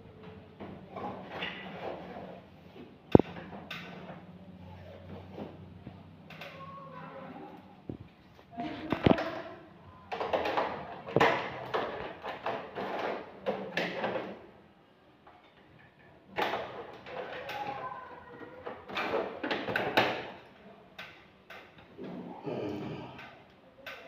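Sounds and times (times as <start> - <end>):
plastic clicking and rattling: 10.1 - 14.4.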